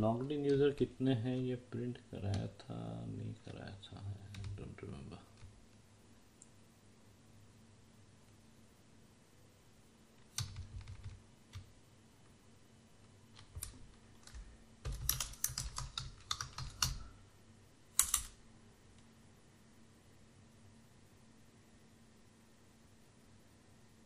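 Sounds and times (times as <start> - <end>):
computer keyboard typing: 4.3 - 4.6, 10.3 - 11.7, 13.4 - 17.1, 18.0 - 18.4.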